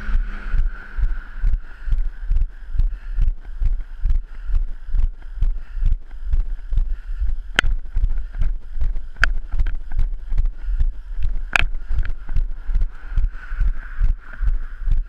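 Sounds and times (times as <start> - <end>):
wind on microphone: 0.0 - 15.0
footsteps on pavement: 0.1 - 15.0
sharp clicks: 7.5 - 10.5, 11.2 - 13.3.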